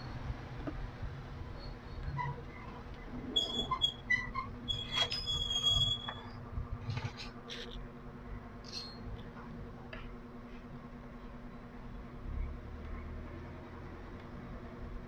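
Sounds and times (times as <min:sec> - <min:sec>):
squeaky scrape: 0:03.4 - 0:07.8, 0:08.7 - 0:09.1.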